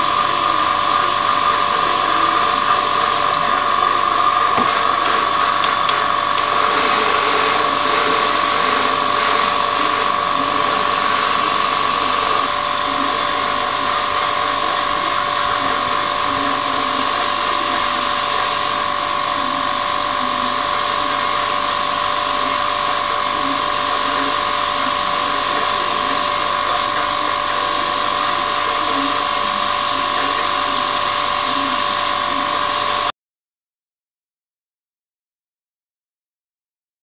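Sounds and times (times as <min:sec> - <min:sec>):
paint spray hissing: 0:00.0 - 0:03.4, 0:04.6 - 0:18.9, 0:19.9 - 0:33.1
extractor fan humming: 0:00.0 - 0:33.1.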